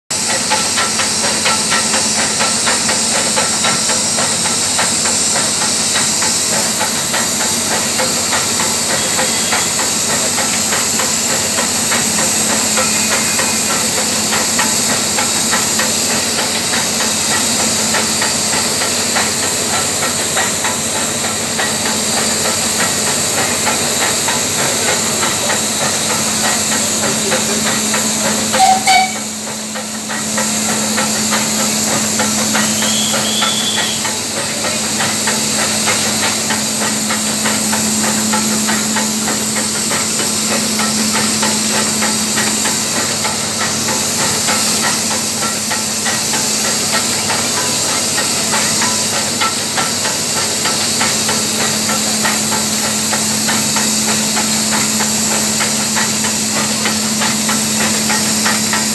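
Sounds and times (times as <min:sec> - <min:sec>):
steam locomotive hissing: 0:00.1 - 0:58.9
rapid ticking: 0:00.2 - 0:58.9.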